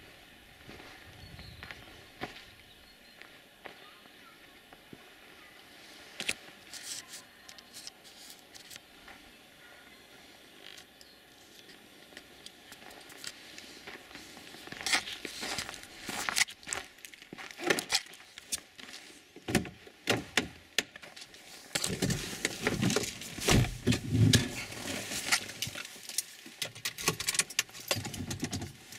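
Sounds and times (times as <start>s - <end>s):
footsteps crunching in snow: 0.0s - 7.3s, 12.7s - 19.3s.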